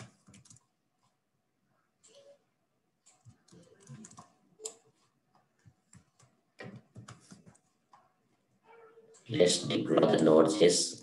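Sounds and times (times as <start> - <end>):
computer keyboard keystrokes: 0.0 - 0.7, 3.1 - 4.8.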